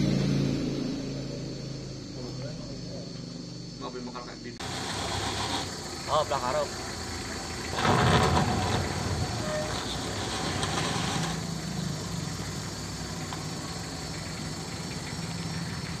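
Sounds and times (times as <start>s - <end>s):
van engine idling: 1.0s - 16.0s
bright hiss: 4.6s - 16.0s.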